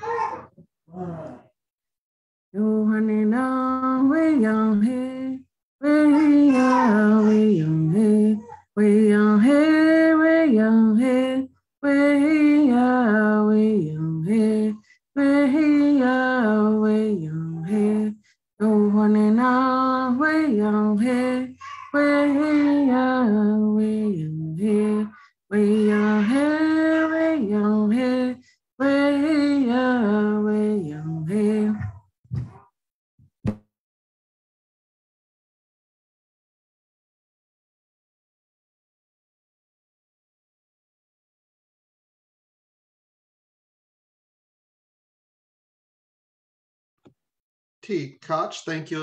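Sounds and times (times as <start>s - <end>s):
woman singing unaccompanied: 2.6s - 32.1s.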